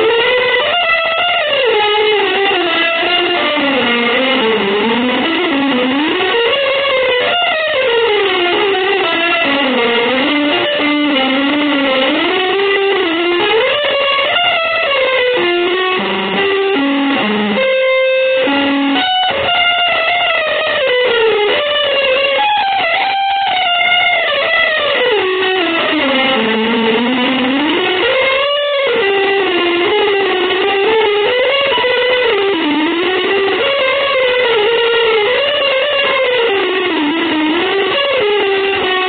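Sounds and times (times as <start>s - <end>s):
electric guitar with effects: 0.0s - 39.0s.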